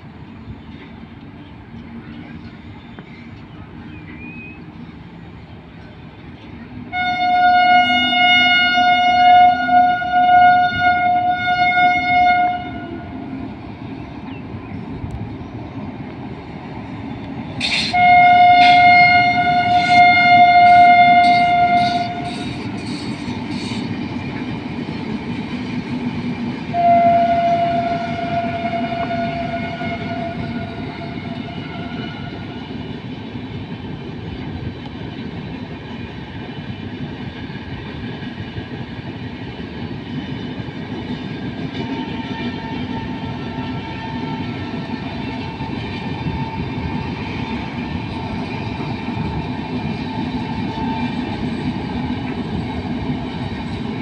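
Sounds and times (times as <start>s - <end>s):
train coaches rumbling past: 0.0s - 54.0s
locomotive horn blasts: 6.9s - 13.2s, 17.6s - 22.6s, 26.7s - 32.5s, 42.0s - 44.9s.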